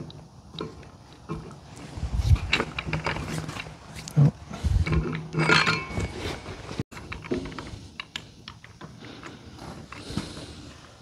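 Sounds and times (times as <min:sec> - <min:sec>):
metal parts clicking and clinking: 0:04.8 - 0:06.2
metal clatter with ringing: 0:04.9 - 0:06.4.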